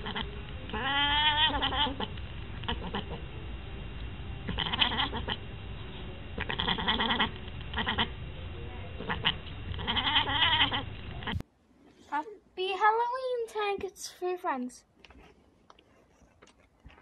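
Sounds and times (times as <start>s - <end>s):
cat crying in pulsed bursts: 0.8s - 2.0s, 4.5s - 5.4s.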